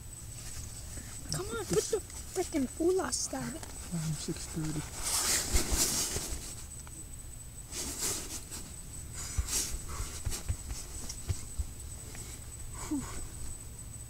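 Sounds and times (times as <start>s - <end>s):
sleeping bag and tent rustling: 0.2s - 6.8s, 7.7s - 13.6s
soft low bumps: 8.2s - 13.9s.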